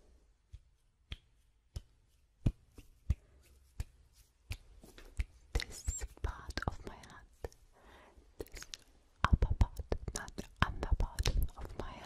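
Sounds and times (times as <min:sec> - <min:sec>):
crisp hand clicks: 0:03.8 - 0:07.6, 0:08.4 - 0:11.9.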